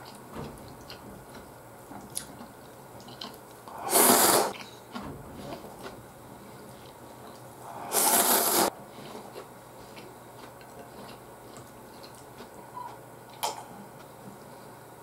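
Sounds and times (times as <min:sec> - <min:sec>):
chewing: 0:00.0 - 0:14.7
person slurping noodles: 0:03.7 - 0:04.6, 0:07.6 - 0:09.3.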